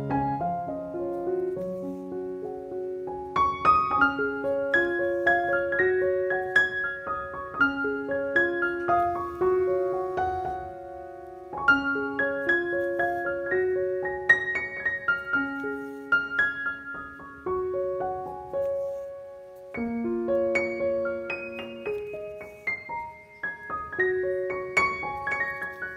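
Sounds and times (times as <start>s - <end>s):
piano music: 0.0s - 25.9s.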